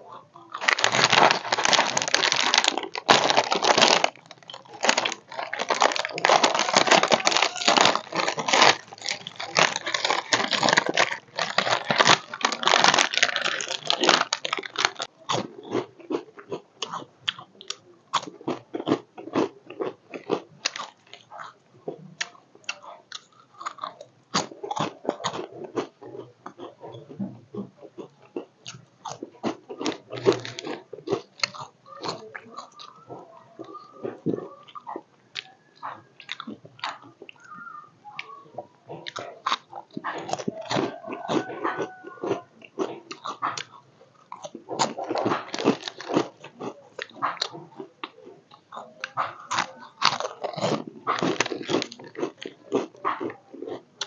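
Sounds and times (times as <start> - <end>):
crunchy snacks being chewed: 0.0 - 54.0
plastic packet crinkling: 0.5 - 15.4, 20.6 - 21.2, 29.0 - 33.0, 43.1 - 47.6, 49.0 - 53.2.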